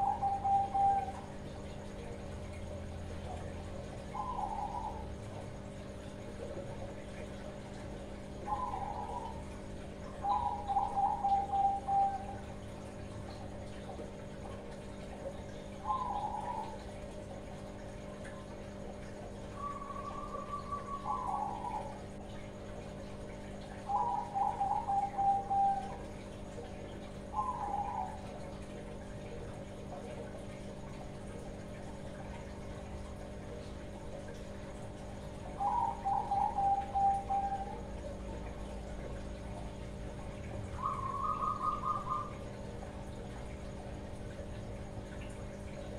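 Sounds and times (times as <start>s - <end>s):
dove cooing: 0.0s - 1.3s, 3.3s - 5.4s, 8.4s - 12.4s, 15.7s - 17.1s, 19.6s - 22.2s, 23.8s - 26.1s, 27.3s - 30.3s, 35.2s - 39.7s, 40.4s - 43.4s.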